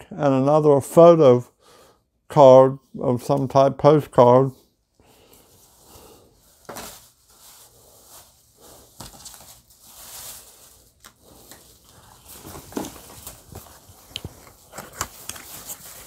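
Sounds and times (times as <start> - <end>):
rustling and handling of items: 5.0 - 16.0.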